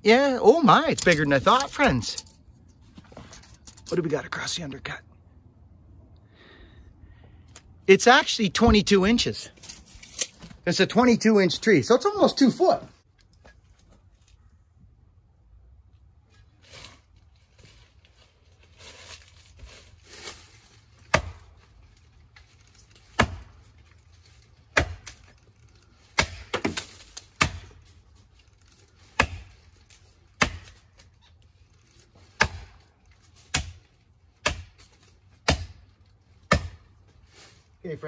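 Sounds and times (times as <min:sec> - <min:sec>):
axe chopping tree trunk: 0:21.0 - 0:21.6, 0:22.8 - 0:23.8, 0:24.6 - 0:25.4, 0:26.0 - 0:28.0, 0:28.9 - 0:31.1, 0:32.2 - 0:37.0.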